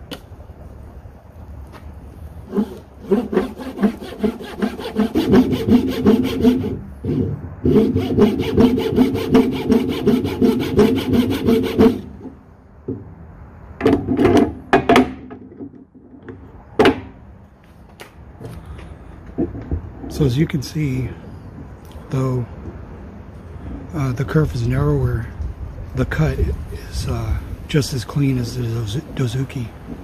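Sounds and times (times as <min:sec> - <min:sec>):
hand saw cutting wood: 0:02.5 - 0:12.3.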